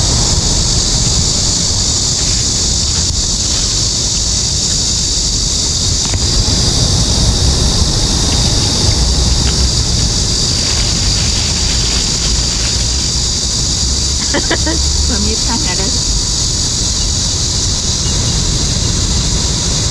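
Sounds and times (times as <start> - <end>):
steady high hiss: 0.0 - 19.9
wind rumbling on microphone: 0.0 - 19.9
plastic bags rustling: 2.1 - 4.5, 8.3 - 13.6.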